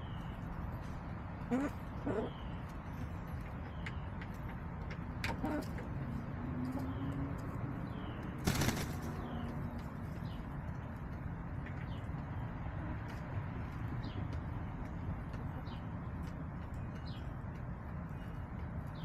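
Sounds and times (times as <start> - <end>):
hens crooning: 1.4 - 2.7.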